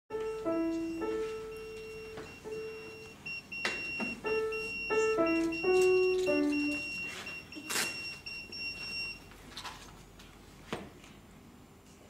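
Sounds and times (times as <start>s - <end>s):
grand piano slow melody: 0.1s - 7.6s.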